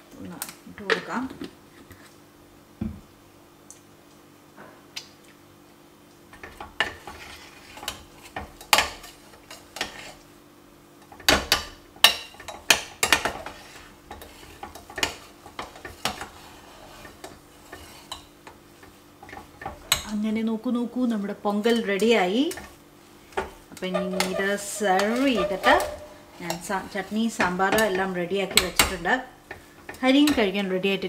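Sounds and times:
spoon scraping metal pot: 23.4 - 29.2.

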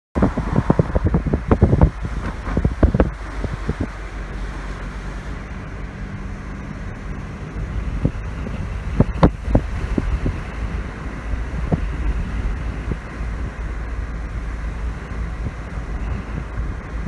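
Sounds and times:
car engine and road rumble: 0.1 - 17.0
sudden low thumps: 0.2 - 4.0
wind buffeting microphone: 0.2 - 17.0.

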